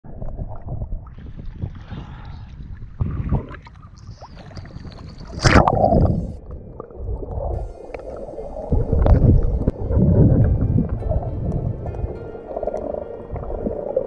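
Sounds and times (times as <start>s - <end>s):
sea water sloshing and lapping: 0.1s - 14.0s
loud splash of camera plunging: 4.4s - 6.3s.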